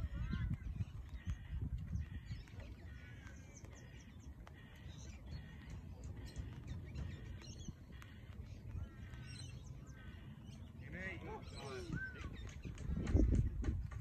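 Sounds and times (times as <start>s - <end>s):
steady low rumble: 0.0s - 11.1s.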